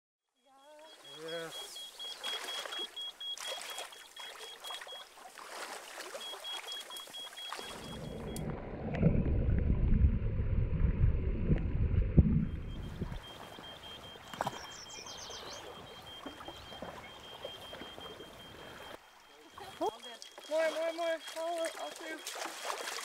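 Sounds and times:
high rapid beeping: 0.4 - 5.0, 17.0 - 22.7
stream water splashing: 0.9 - 23.0
muffled underwater water rush: 1.1 - 23.0.

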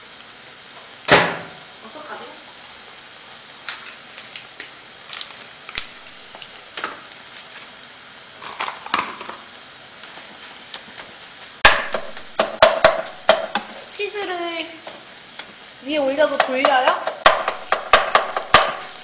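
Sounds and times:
rice sizzling in a frying pan: 0.0 - 19.0
spatula scraping and knocking pan: 11.6 - 13.8, 16.2 - 19.0.

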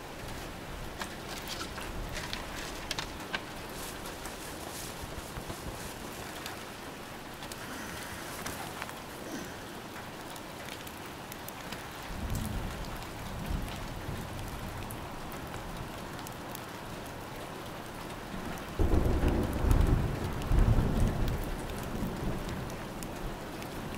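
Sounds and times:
steady rain falling: 0.0 - 23.9
thunder rumbling: 18.8 - 22.7.

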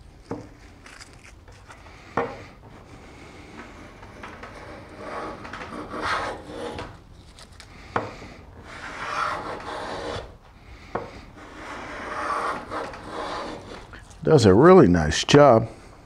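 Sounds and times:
hand plane shaving wood: 3.2 - 7.0, 8.2 - 10.4, 11.1 - 14.0.

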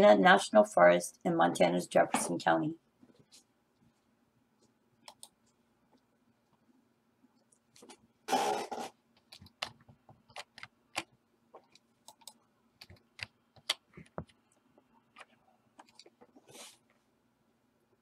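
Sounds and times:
faint steady hum: 0.0 - 18.0
computer mouse and keyboard clicks: 5.0 - 5.4, 9.2 - 14.4.

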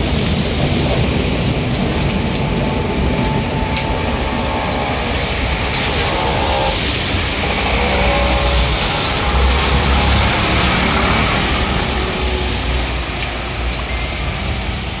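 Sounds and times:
heavy rain: 0.0 - 15.0
low engine rumble: 0.0 - 15.0
vehicles hissing past on wet road: 6.8 - 15.0.

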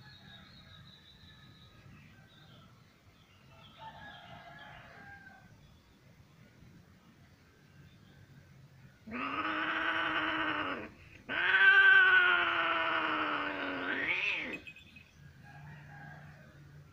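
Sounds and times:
cat yowling: 9.1 - 14.7.

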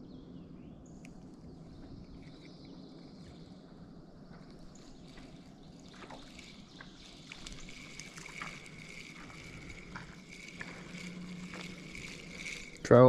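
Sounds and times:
thin steady whine: 0.0 - 13.0
fishing reel clicking: 4.5 - 13.0
running water hiss: 4.6 - 13.0.

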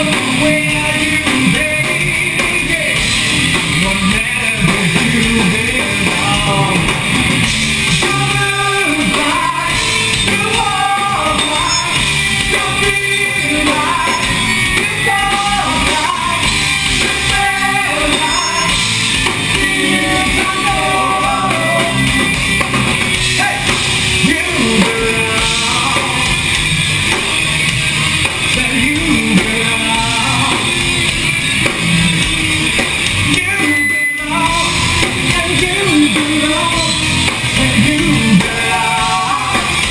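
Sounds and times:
drum kit: 0.0 - 39.9
electric guitars: 0.0 - 39.9
person singing: 3.8 - 7.0, 8.0 - 22.2, 23.4 - 26.4, 28.5 - 30.8, 33.3 - 39.9.

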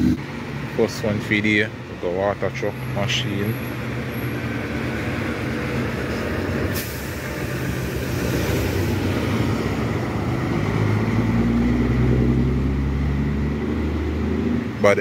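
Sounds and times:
truck engine passing: 0.0 - 15.0
short sharp hiss: 6.7 - 7.4.

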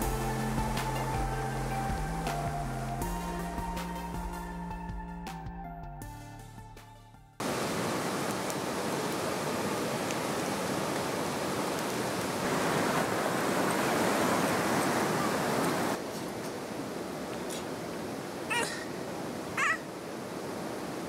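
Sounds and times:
creek rushing over rocks: 7.4 - 21.0.

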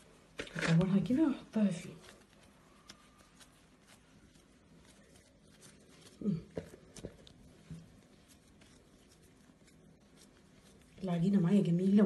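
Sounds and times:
faint clicks and taps: 2.0 - 11.1.

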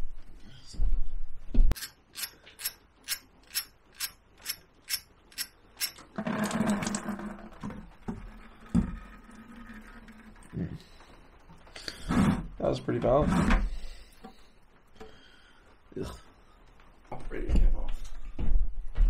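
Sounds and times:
ratchet wrench clicking: 1.8 - 6.0.

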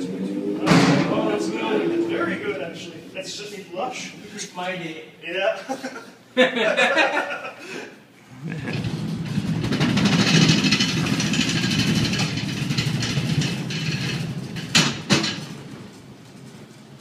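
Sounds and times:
crate rolling on caster dollies: 8.4 - 17.0.

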